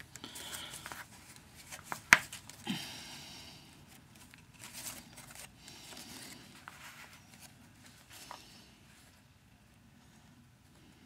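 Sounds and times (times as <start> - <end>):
stiff paper rustling: 0.0 - 2.7, 3.8 - 9.1.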